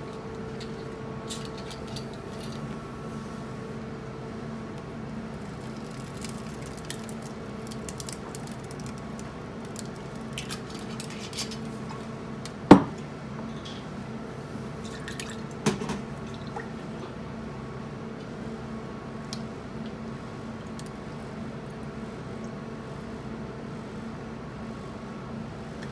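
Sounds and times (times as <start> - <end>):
liquid pouring over ice: 5.2 - 11.2.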